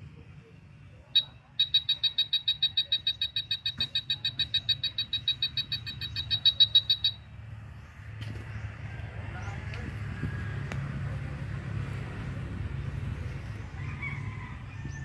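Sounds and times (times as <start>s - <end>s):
wall scanner beeping rapidly: 1.1s - 7.4s.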